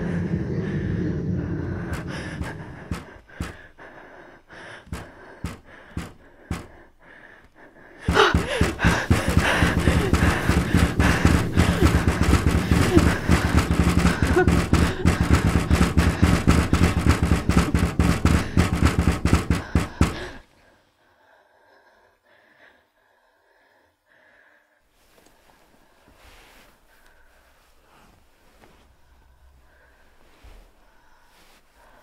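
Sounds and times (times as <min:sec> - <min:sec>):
loud dense crackling noise: 0:00.0 - 0:03.6, 0:08.1 - 0:20.4
steady low hum: 0:00.0 - 0:20.4.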